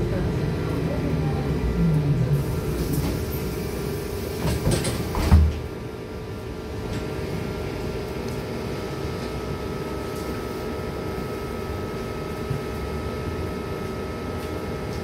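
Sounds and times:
electrical hum of vehicle: 0.0s - 15.0s
bus doors clattering open: 2.4s - 5.8s.

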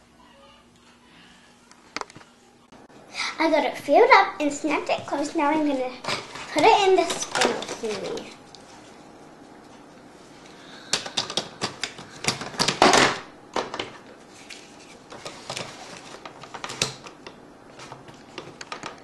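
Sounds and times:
hard plastic clicking and clattering: 10.9s - 14.0s, 15.1s - 19.0s.

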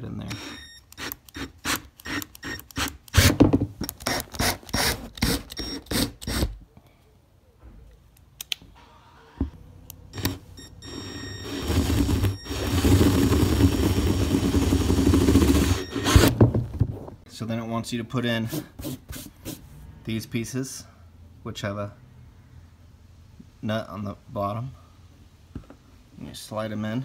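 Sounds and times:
power drill boring through plastic: 10.2s - 16.3s.

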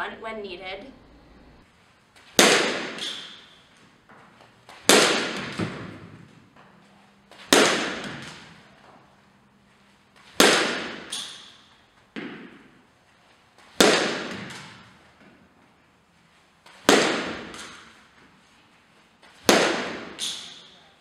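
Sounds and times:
bat hitting ball: 2.3s - 6.7s, 7.3s - 9.0s, 10.2s - 12.8s, 13.6s - 15.5s, 16.7s - 18.3s, 19.3s - 20.8s.

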